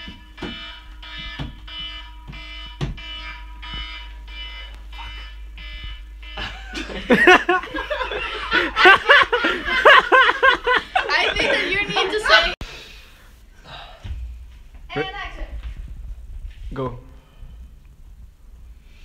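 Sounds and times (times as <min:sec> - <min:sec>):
phone alarm beeping: 0:00.0 - 0:08.9.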